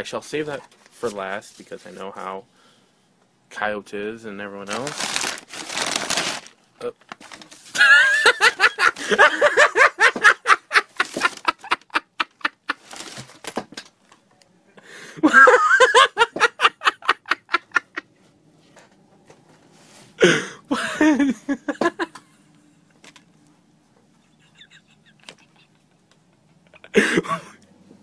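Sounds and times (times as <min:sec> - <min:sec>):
man laughing hard: 0:07.8 - 0:13.0, 0:15.2 - 0:18.0, 0:20.2 - 0:22.3, 0:24.2 - 0:27.6.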